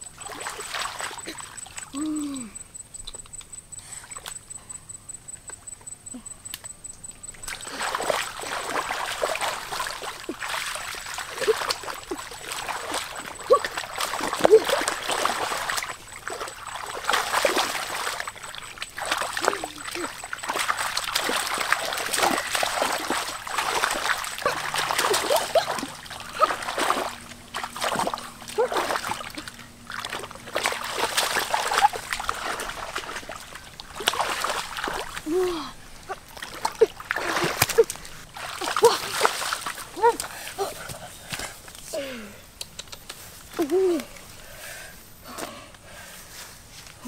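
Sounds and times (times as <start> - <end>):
splashing and sloshing in water: 0.0 - 2.0, 7.2 - 41.7
quick regular ticking: 1.1 - 7.6.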